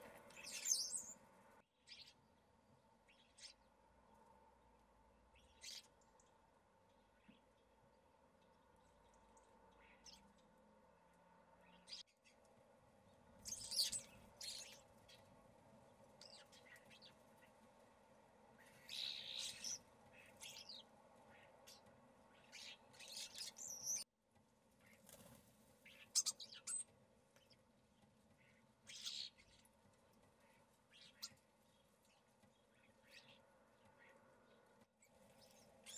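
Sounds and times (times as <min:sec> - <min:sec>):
starlings calling: 0:00.0 - 0:01.2, 0:13.4 - 0:15.2, 0:18.6 - 0:21.8, 0:22.4 - 0:24.0, 0:25.8 - 0:26.8.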